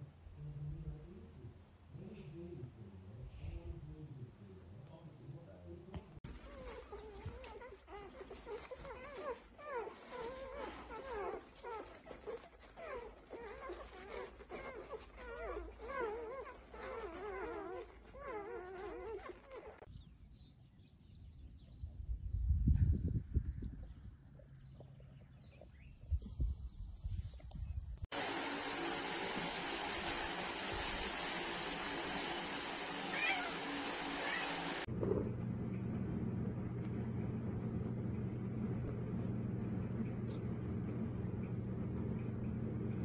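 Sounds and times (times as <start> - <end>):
dog whining: 6.3 - 19.9, 30.8 - 35.2
cat meowing: 33.1 - 34.8.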